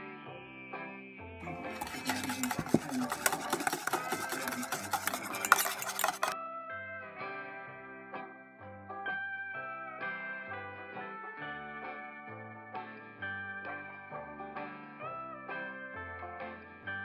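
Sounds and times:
whisk beating in a bowl: 1.4s - 6.4s.

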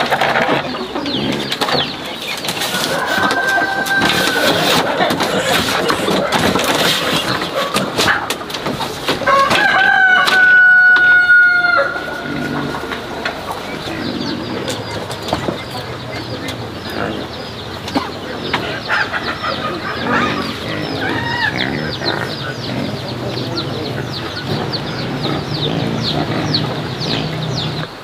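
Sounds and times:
chicks peeping: 0.0s - 28.0s
low clucking: 0.0s - 28.0s
rooster crowing: 2.8s - 5.0s, 9.2s - 13.2s.

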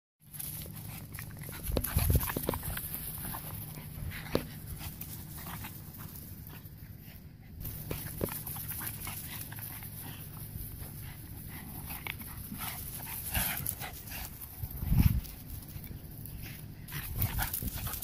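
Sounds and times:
dogs playing: 0.2s - 18.0s
steady low rumble: 0.2s - 18.0s.

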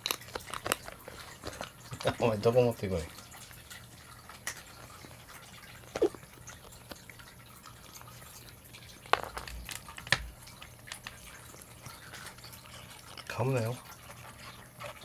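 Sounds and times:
faint wet clicks and drips: 0.0s - 15.0s
cat chewing rubber nipple: 5.8s - 7.1s.

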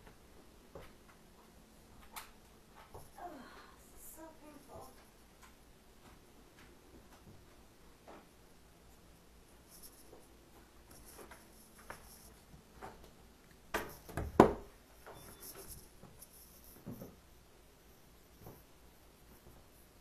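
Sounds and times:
soft footsteps: 0.0s - 3.2s, 4.2s - 20.0s
loud knocks and thumps: 13.8s - 14.7s.

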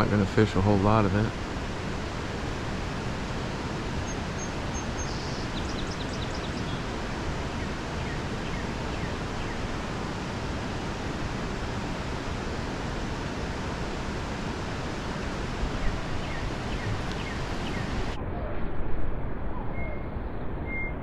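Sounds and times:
bird chirping: 4.0s - 6.8s, 15.8s - 18.0s.

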